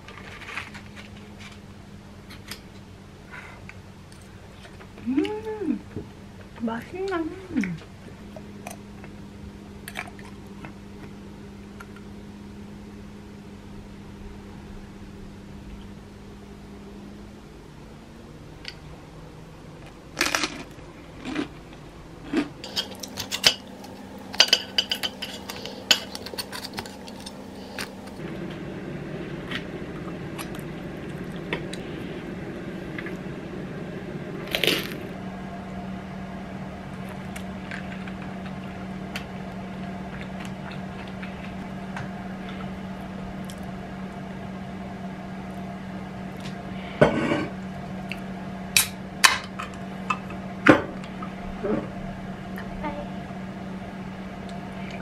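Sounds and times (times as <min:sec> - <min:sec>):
steady hum: 0:00.0 - 0:55.0
dishes and cutlery clinking: 0:22.6 - 0:27.4.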